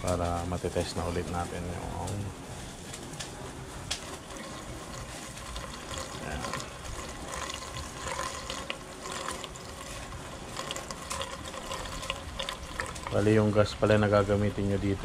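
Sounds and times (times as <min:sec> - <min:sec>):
fuel pouring through a funnel: 0:03.4 - 0:15.0.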